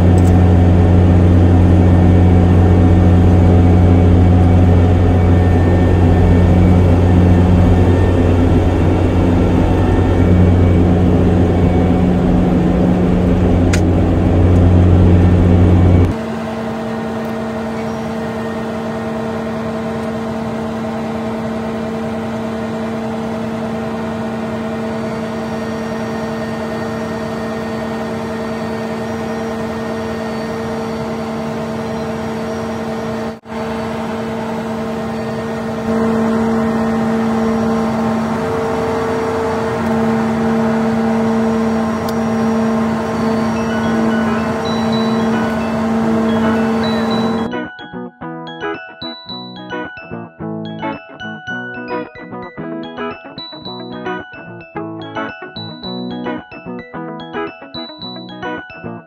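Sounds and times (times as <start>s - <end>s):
deep rumble: 0.0s - 16.2s
combine harvester hum and whine: 0.0s - 47.6s.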